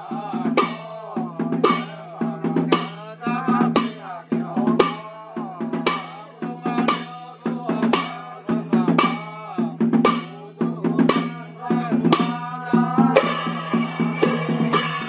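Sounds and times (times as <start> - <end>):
loud ringing percussion stroke: 0.0 - 3.0, 11.1 - 15.0
light drum strokes: 0.0 - 15.0.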